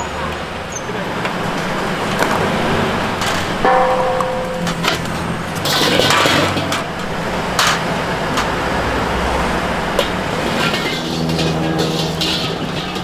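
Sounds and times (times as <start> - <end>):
cooking utensils clattering: 0.0 - 13.0.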